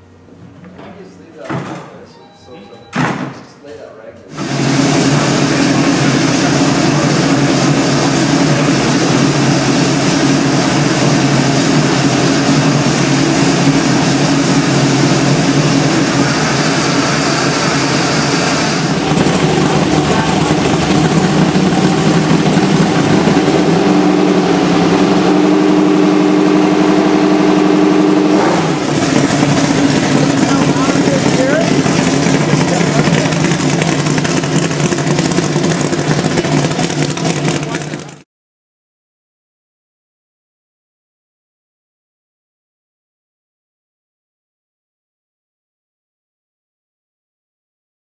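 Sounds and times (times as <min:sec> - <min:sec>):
vee eight engine running: 0:04.3 - 0:38.2.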